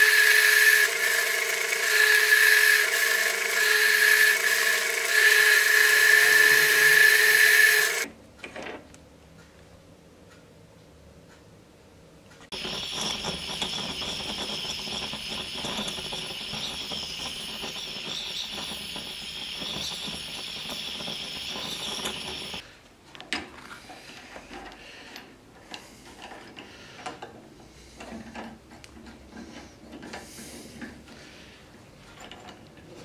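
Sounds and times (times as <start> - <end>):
propane torch hissing: 12.5 - 22.6.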